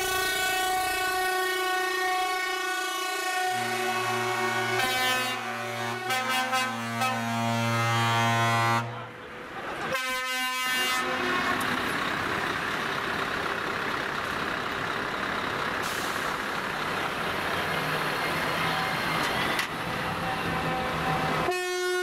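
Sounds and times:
truck air horn: 0.0 - 9.2, 9.8 - 11.6, 20.2 - 22.0
heavy trucks driving past: 0.0 - 22.0.

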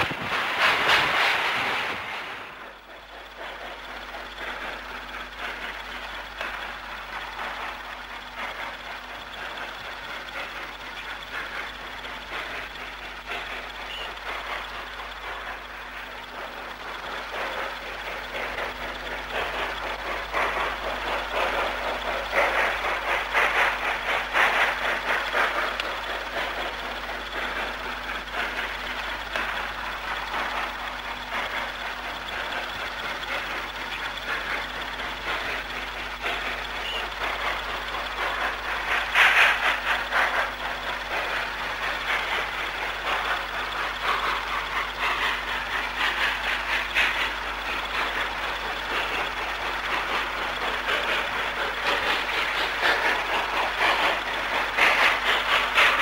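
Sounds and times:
steam hiss: 0.0 - 56.0
steam locomotive exhaust beating: 0.0 - 56.0.

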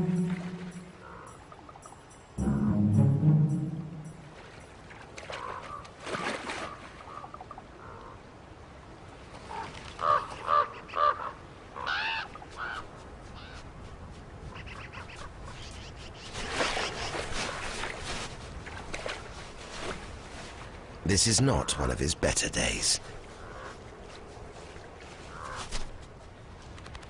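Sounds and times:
birds calling: 0.0 - 2.2, 21.2 - 24.0.

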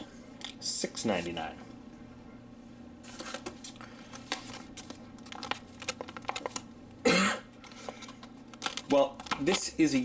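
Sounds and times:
plastic packaging crinkling: 4.1 - 6.7, 7.6 - 9.8.

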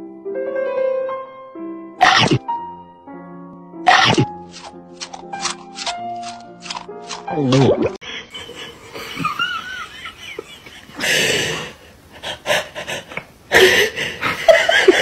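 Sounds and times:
person laughing with wheezing gasps: 10.6 - 15.0.

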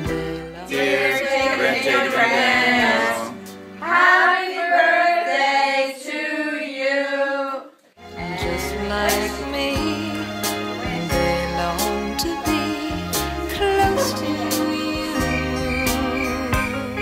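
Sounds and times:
low musical accompaniment: 0.0 - 4.1, 8.0 - 17.0
people singing: 0.0 - 17.0.

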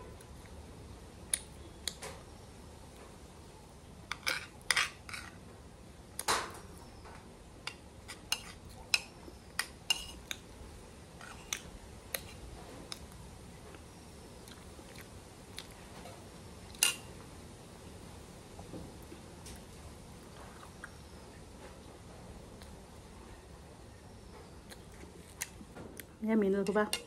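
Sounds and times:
cutlery clinking on a plate: 4.1 - 5.4, 7.7 - 10.3.

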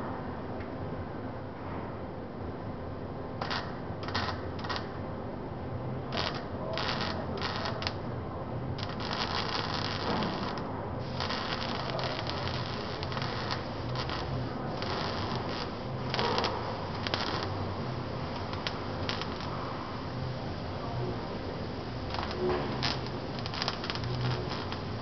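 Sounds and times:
arc welding crackling sizzle: 3.4 - 5.0, 6.0 - 25.0.

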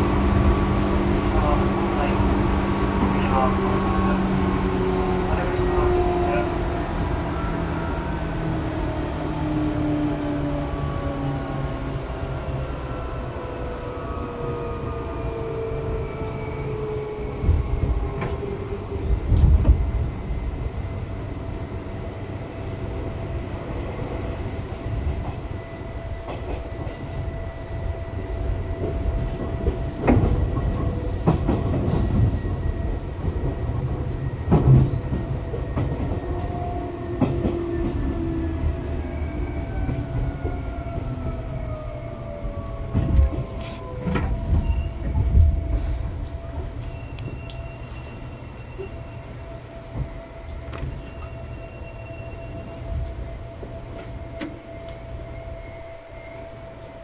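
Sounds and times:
train rumble inside passenger car: 0.0 - 57.0.

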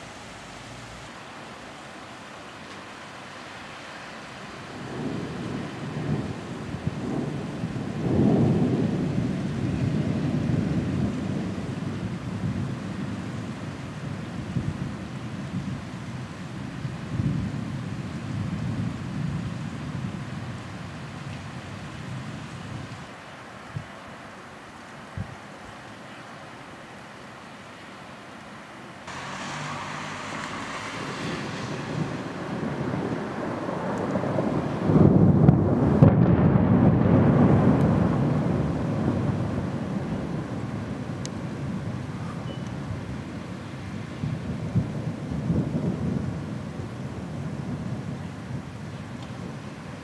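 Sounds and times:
rolling thunder: 4.5 - 15.8, 29.1 - 43.3, 44.0 - 50.0.

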